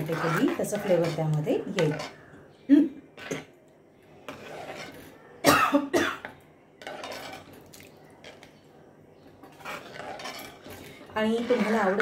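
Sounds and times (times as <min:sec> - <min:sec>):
ladle stirring liquid in a pan: 0:00.0 - 0:05.4, 0:06.2 - 0:12.0
woman coughing: 0:05.4 - 0:06.2.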